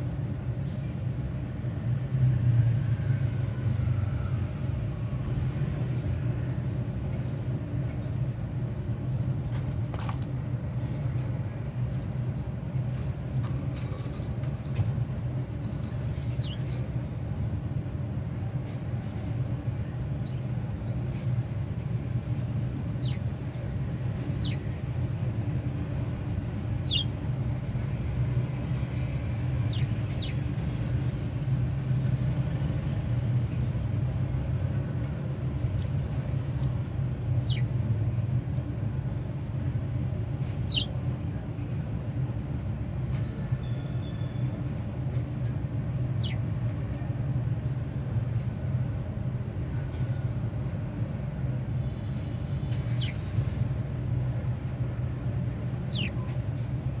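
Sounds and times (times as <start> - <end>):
budgerigar chirps: 24.4 - 24.7, 26.8 - 27.2, 37.4 - 37.7, 40.6 - 41.0, 46.2 - 46.4, 52.8 - 53.3, 55.9 - 56.2.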